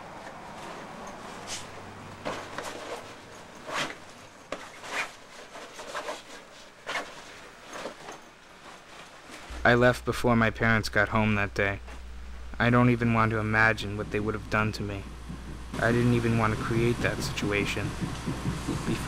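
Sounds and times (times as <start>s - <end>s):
steady hiss: 9.2s - 19.0s
belongings knocking and rubbing: 9.5s - 19.0s.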